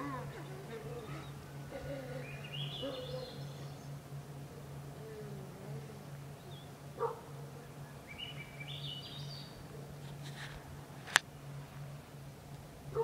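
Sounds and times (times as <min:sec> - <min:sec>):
small bird singing: 0:00.0 - 0:10.4
steady low hum: 0:00.0 - 0:13.0
short lower-pitched bird call: 0:02.2 - 0:03.8.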